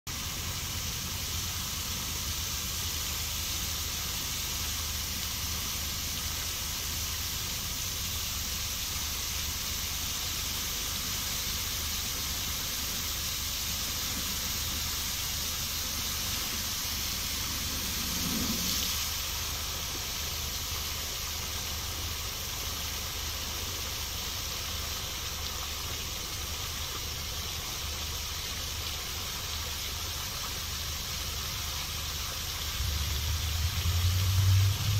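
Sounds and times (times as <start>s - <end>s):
fountain water splashing: 0.1s - 34.9s
low rumble: 17.0s - 19.0s, 32.6s - 34.9s.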